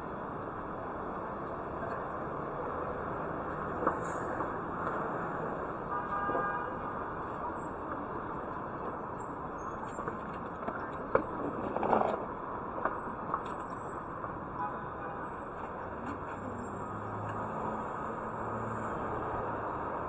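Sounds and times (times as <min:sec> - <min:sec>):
street traffic noise: 0:00.0 - 0:20.0.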